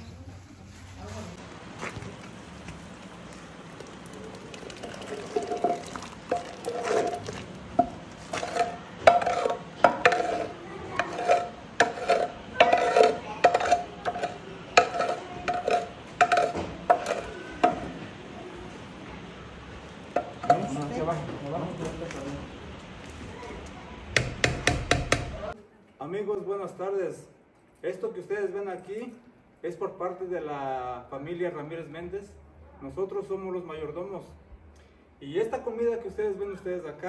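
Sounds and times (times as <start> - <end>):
saucepan scraping clay pot: 3.9 - 18.2, 20.1 - 20.9.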